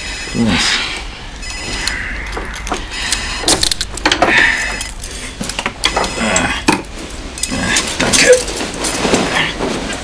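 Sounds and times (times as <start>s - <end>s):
handcuffs rattling and clicking: 3.5s - 6.0s.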